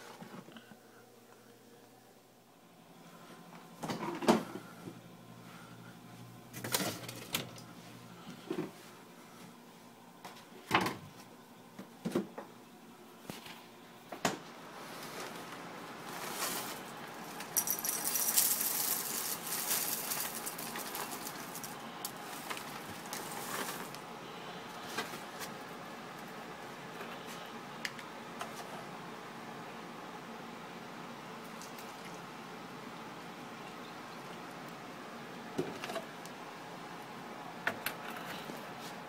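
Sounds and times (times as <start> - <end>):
cereal pouring into ceramic bowl: 17.5 - 21.8.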